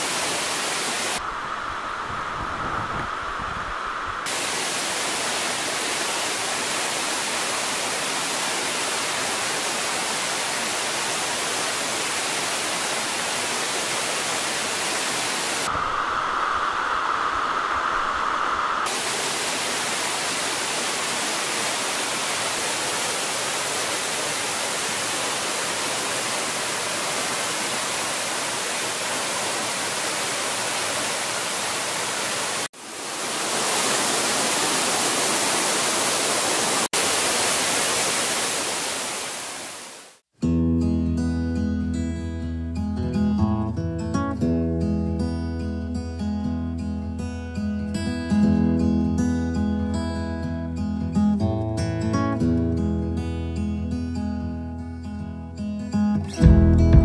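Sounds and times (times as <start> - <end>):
stream and waterfall rushing: 0.0 - 40.2.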